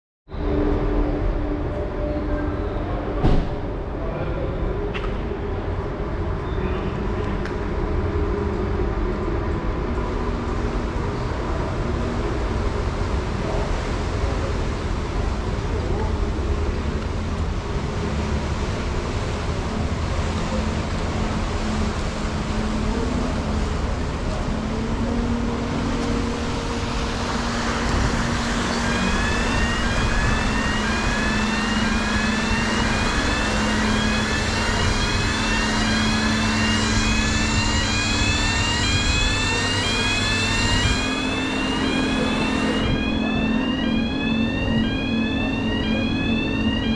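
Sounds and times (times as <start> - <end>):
ferry machinery droning: 0.3 - 46.9
churned water rushing: 0.4 - 46.9
electronic warning chirp: 27.8 - 46.9.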